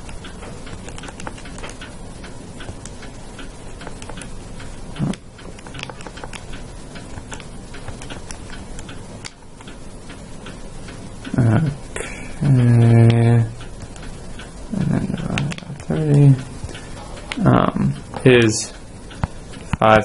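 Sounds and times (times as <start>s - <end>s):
calculator keys clicking: 0.0s - 1.9s, 2.6s - 4.3s, 5.0s - 10.6s.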